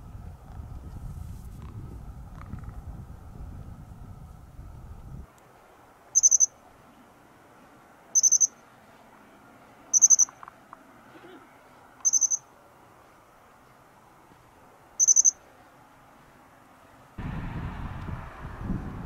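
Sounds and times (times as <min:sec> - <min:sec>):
bird trilled chirps: 0:06.1 - 0:06.6, 0:08.1 - 0:08.6, 0:09.9 - 0:10.4, 0:12.0 - 0:12.5, 0:15.0 - 0:15.4.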